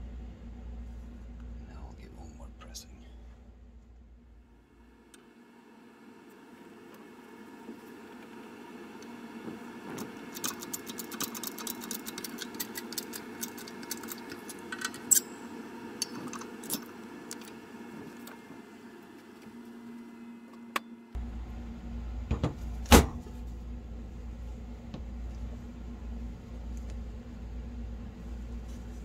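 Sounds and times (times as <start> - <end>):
low rumble: 0.0 - 4.9
steady hum: 0.0 - 29.0.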